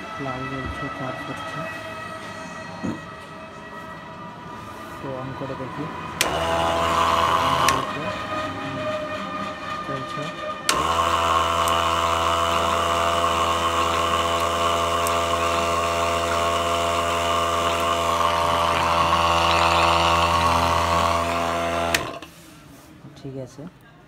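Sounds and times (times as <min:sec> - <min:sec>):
electric pump humming: 0:05.0 - 0:22.4.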